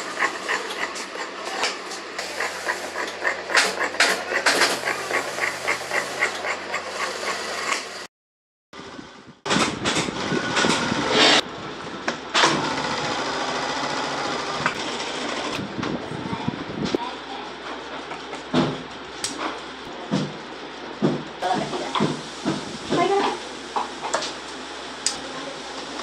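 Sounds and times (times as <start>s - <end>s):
shears snipping material: 0.0s - 7.9s
industrial sewing machine running: 0.0s - 8.1s, 12.3s - 15.7s.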